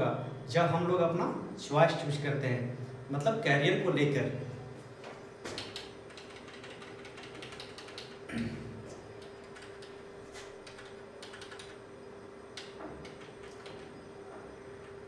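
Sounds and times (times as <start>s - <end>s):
steady hum: 0.0s - 15.0s
computer mouse clicking: 5.5s - 8.2s, 9.2s - 11.8s, 12.6s - 13.9s.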